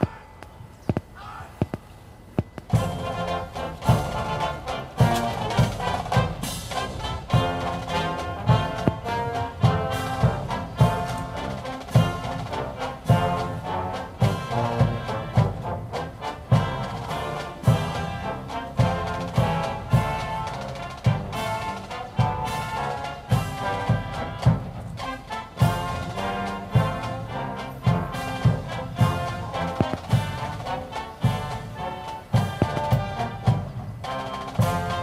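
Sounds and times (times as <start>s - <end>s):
brass band playing a march: 2.7s - 35.0s.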